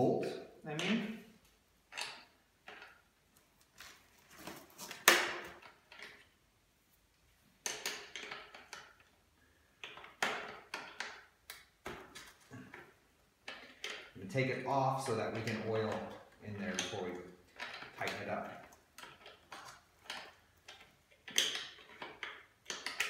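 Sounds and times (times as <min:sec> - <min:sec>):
hand tools clicking on metal: 0:13.4 - 0:23.0.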